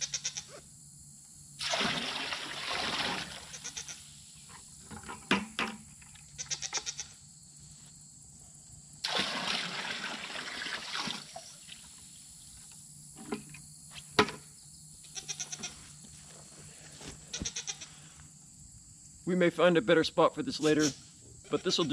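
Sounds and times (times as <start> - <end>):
water splashing into metal tank: 1.6 - 3.5, 9.0 - 11.8
goats bleating: 15.2 - 15.8, 17.3 - 18.0.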